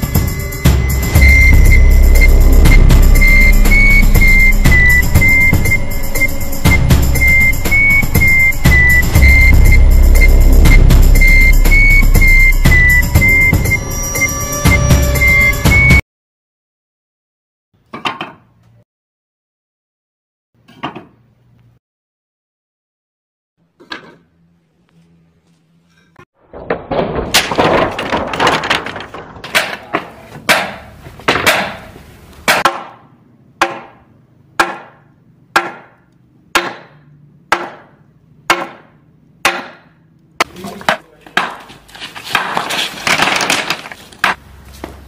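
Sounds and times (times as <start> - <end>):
roof tiles crashing and clattering: 26.4 - 31.8, 40.4 - 44.4.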